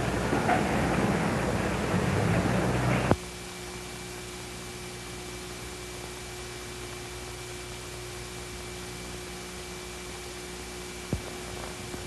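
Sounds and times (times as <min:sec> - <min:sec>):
faint hum: 0:00.0 - 0:12.0
film soundtrack hiss: 0:00.0 - 0:12.0.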